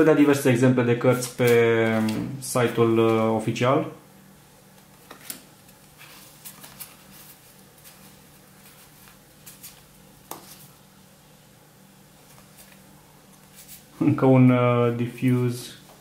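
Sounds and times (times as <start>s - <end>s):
faint low hum: 0.0s - 16.0s
playing cards sliding and flicking: 4.9s - 10.8s, 12.2s - 13.9s.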